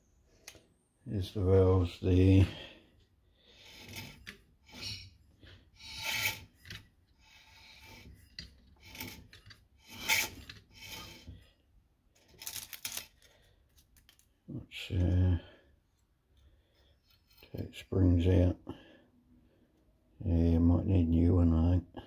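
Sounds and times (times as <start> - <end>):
scratchy rubbing and rasping: 3.5 - 11.5.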